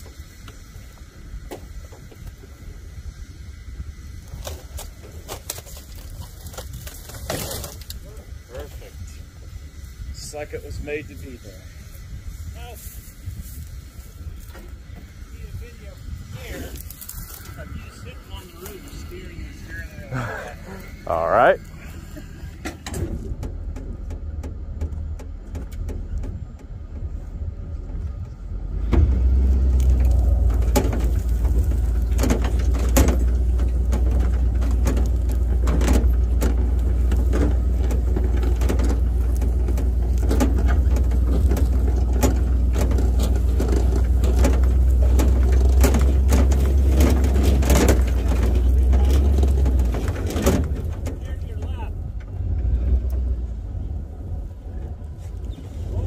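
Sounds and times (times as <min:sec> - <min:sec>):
engine droning under load: 0:00.0 - 0:56.0
wreck body knocking and rattling: 0:13.8 - 0:56.0.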